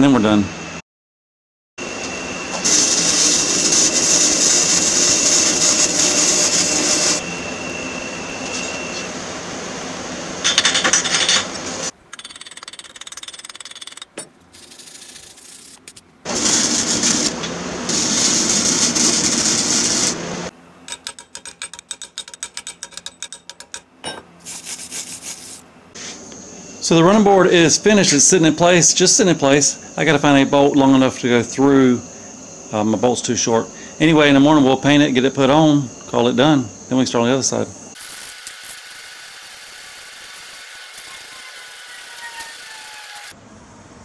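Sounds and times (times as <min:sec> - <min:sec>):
welding hissing and crackling: 0:02.6 - 0:07.2, 0:14.6 - 0:20.2, 0:24.4 - 0:25.6, 0:38.0 - 0:43.4.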